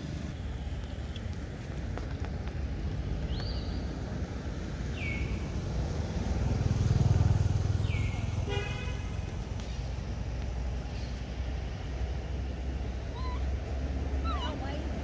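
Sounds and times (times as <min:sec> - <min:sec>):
passing motor vehicle rumble: 0:00.0 - 0:15.0.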